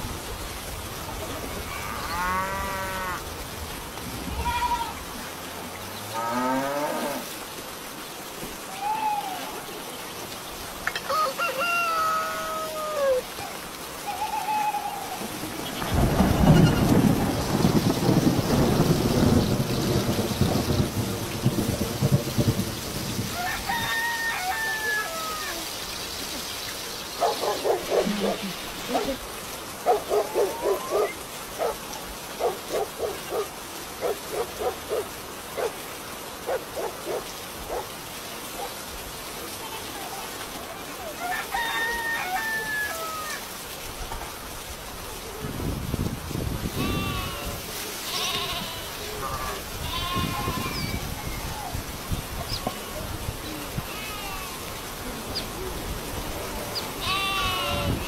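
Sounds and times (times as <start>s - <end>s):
steady rain: 0.0s - 58.0s
rooster crowing: 11.0s - 13.2s, 23.3s - 25.6s, 41.2s - 43.4s
dog barking: 27.2s - 29.2s, 29.8s - 31.8s, 32.4s - 35.8s, 36.5s - 37.9s.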